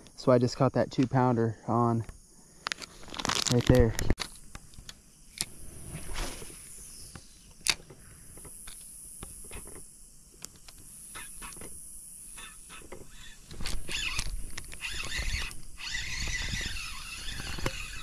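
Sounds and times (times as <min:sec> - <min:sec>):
high-pitched insect buzz: 0:02.1 - 0:18.0
fishing reel clicks: 0:12.4 - 0:18.0.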